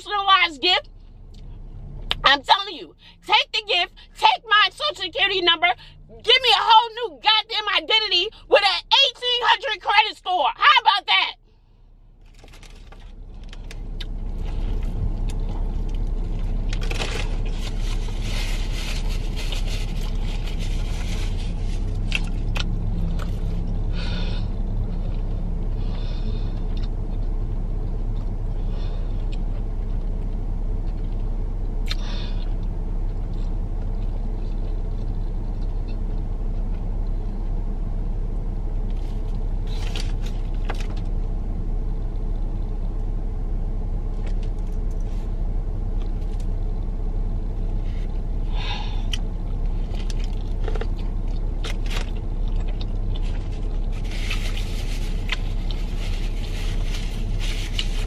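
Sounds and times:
car engine idling: 0:00.0 - 0:09.0, 0:11.4 - 0:58.0
biting into a burger: 0:29.2 - 0:37.2.

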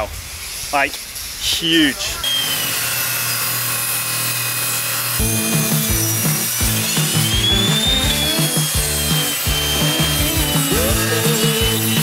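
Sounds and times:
table saw cutting wood: 0:02.2 - 0:12.0
background music with bass line: 0:05.2 - 0:12.0.

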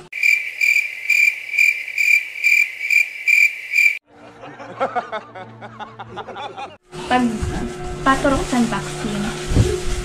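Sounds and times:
cricket chirping: 0:00.1 - 0:04.0.

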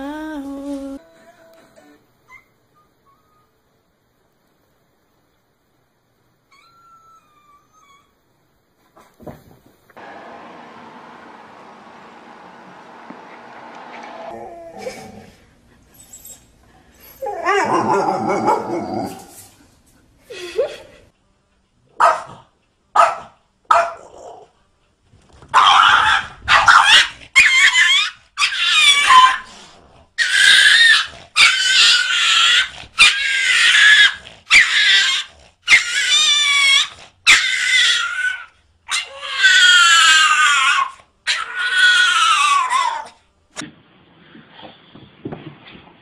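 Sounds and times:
dog barking and howling: 0:17.2 - 0:19.3, 0:23.0 - 0:24.5, 0:25.5 - 0:29.5, 0:30.2 - 0:43.2.

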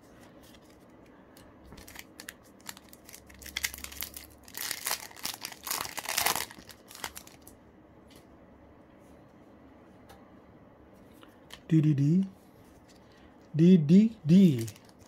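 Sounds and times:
foil wrapper crinkling and tearing: 0:01.7 - 0:07.5, 0:14.5 - 0:15.0.

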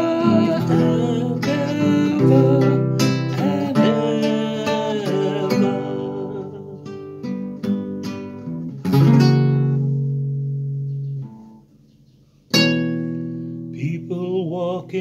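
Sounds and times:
man singing: 0:00.0 - 0:07.1, 0:13.8 - 0:15.0
acoustic guitar strumming chords: 0:00.0 - 0:11.8, 0:12.5 - 0:15.0.

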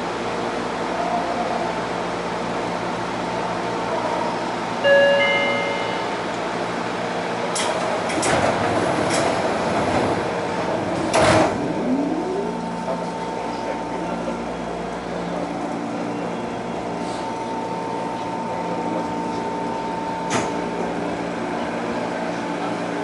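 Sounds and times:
electric train pulling in: 0:09.8 - 0:13.3.

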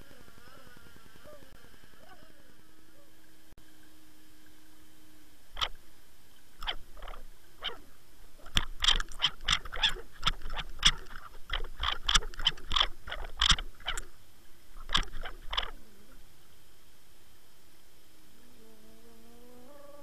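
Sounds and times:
sharp underwater clicks: 0:05.6 - 0:05.8, 0:06.6 - 0:07.8, 0:08.4 - 0:14.2, 0:14.8 - 0:15.8.

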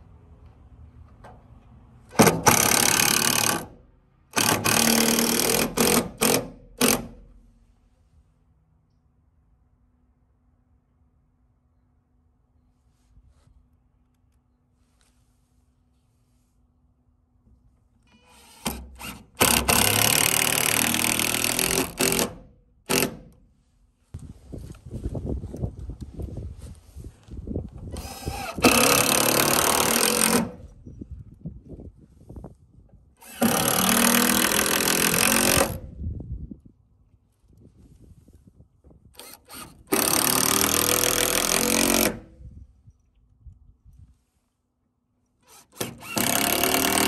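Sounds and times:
impact driver driving screw into wood: 0:02.1 - 0:07.4, 0:18.1 - 0:23.4, 0:27.9 - 0:30.6, 0:33.2 - 0:35.8, 0:39.2 - 0:42.4, 0:45.4 - 0:47.0.

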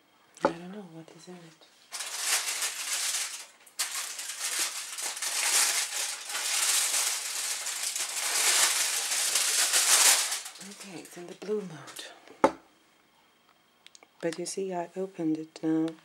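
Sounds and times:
aluminium foil crinkling: 0:01.9 - 0:12.1.

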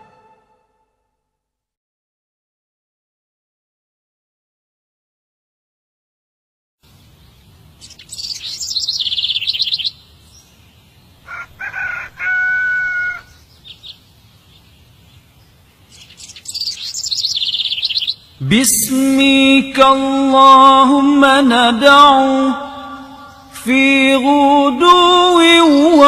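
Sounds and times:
birds chirping trills: 0:06.8 - 0:26.0.

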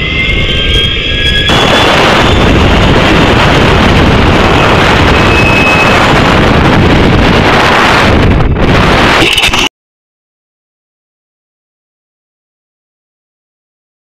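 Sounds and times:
wind rushing over microphone: 0:00.0 - 0:09.7.

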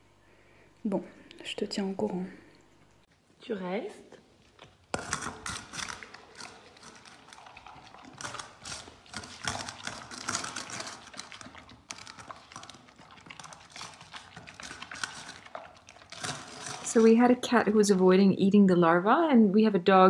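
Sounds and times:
dog chewing and lapping: 0:04.1 - 0:17.8.

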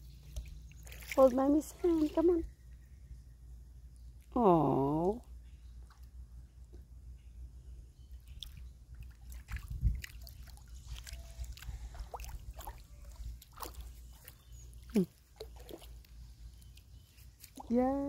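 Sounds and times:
low steady rumble: 0:00.0 - 0:18.0
toddler feet splashing in water: 0:00.3 - 0:02.3, 0:08.3 - 0:17.9.

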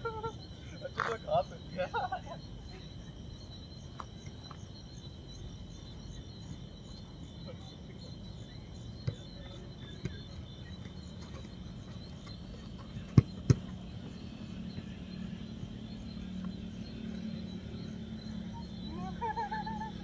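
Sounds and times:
crickets chirring: 0:00.0 - 0:20.0
football being kicked: 0:10.0 - 0:10.2, 0:13.0 - 0:13.8.

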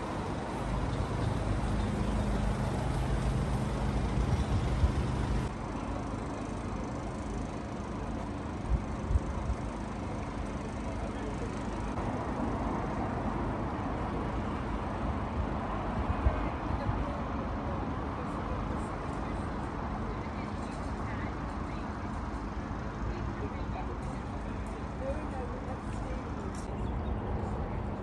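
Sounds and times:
ice cream van idling: 0:00.0 - 0:12.0
road traffic rumble: 0:00.0 - 0:28.0.

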